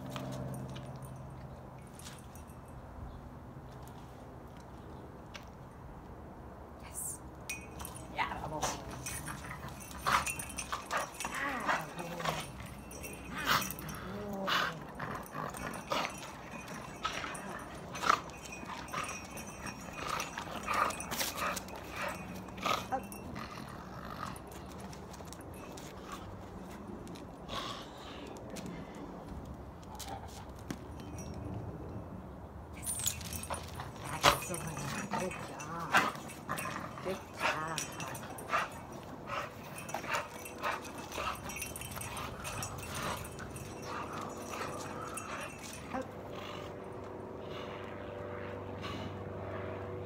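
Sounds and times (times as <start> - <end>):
dog noises: 7.5 - 26.8, 32.8 - 47.9.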